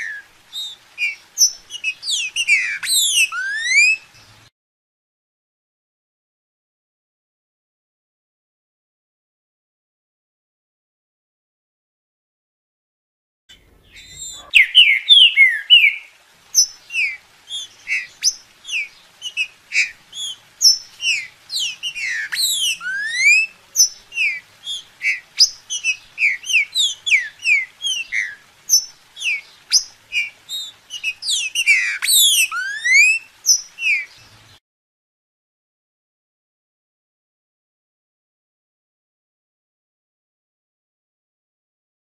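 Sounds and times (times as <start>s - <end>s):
bird singing whistled notes: 0.0s - 4.3s, 13.5s - 34.6s.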